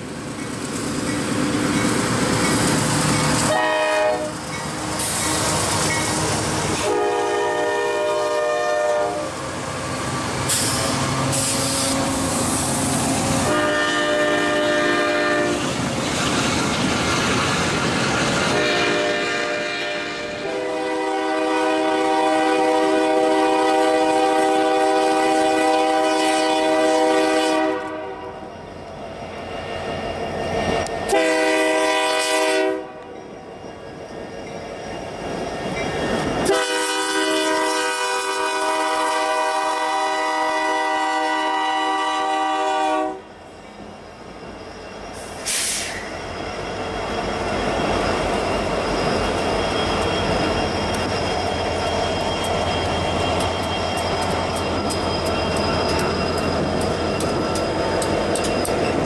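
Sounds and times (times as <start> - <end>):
freight train rumbling: 0.0 - 59.0
locomotive air horn blasts: 3.5 - 4.4, 6.8 - 9.3, 13.4 - 15.6, 18.5 - 28.4, 31.1 - 33.1, 36.4 - 43.3.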